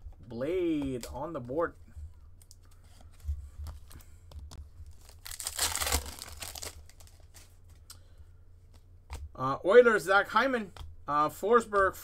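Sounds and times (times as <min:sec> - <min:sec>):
wrapper tearing and crinkling: 0:04.9 - 0:07.5.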